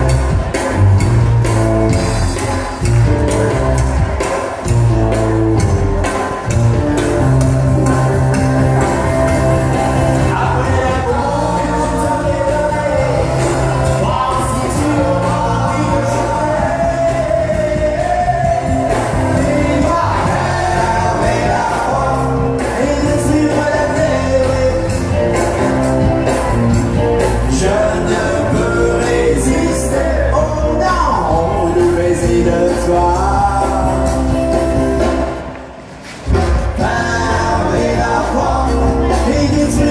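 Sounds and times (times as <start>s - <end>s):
country band over loudspeakers: 0.0s - 39.9s
person singing: 6.0s - 26.5s, 27.2s - 34.8s, 36.3s - 39.9s.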